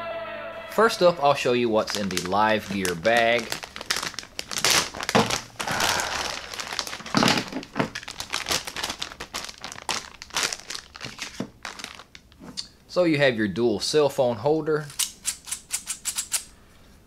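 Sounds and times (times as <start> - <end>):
plastic bag crinkling: 1.2 - 12.4.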